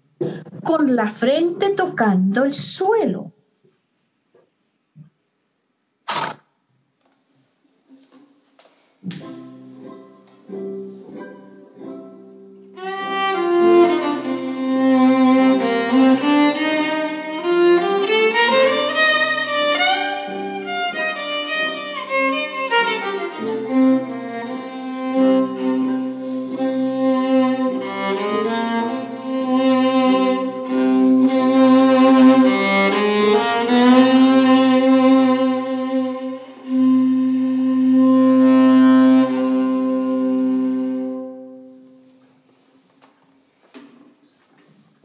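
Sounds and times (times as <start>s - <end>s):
violin playing slow melody: 9.8s - 42.2s.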